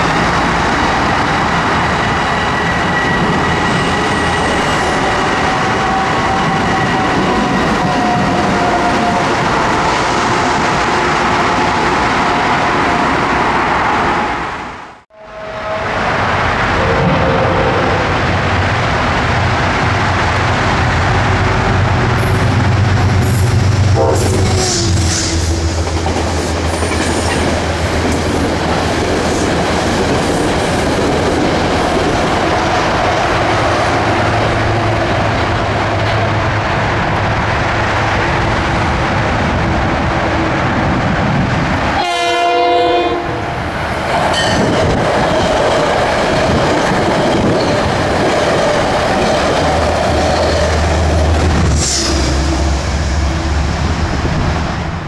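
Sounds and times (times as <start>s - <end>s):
train passing: 0.0s - 55.0s
train horn blast: 15.1s - 16.2s, 23.9s - 25.7s, 42.0s - 43.4s.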